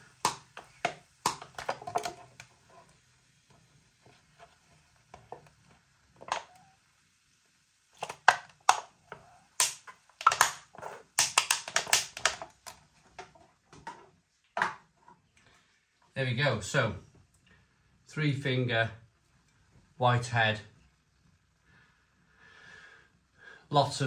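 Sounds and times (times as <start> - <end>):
aluminium can crackling: 0.0 - 6.8, 7.9 - 14.0.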